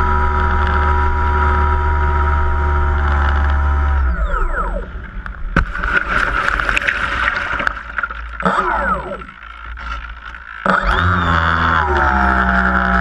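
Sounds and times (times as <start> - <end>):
model plane motor whine: 0.0 - 4.9, 10.7 - 13.0
water splashing: 5.5 - 10.8.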